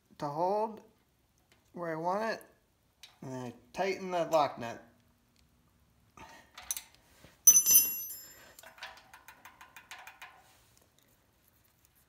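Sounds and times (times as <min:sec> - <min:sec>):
sharp metallic clank: 0:07.5 - 0:08.4.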